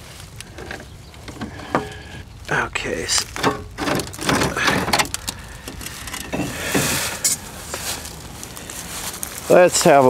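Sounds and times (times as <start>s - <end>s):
rustle: 0.0s - 10.0s
metal pipe knocking and scraping: 0.5s - 2.0s, 3.3s - 7.4s.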